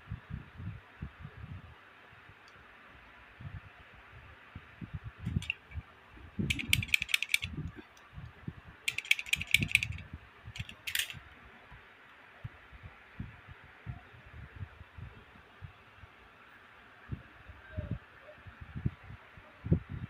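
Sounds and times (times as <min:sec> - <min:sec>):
small plastic and metal clicks: 0:05.3 - 0:05.8, 0:06.5 - 0:08.1, 0:08.9 - 0:10.0, 0:10.6 - 0:11.2.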